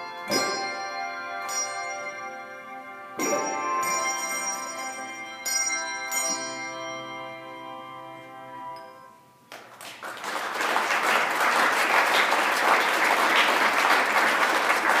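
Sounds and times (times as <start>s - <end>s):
handbell chord: 0.0s - 9.2s
audience applauding: 9.5s - 15.0s.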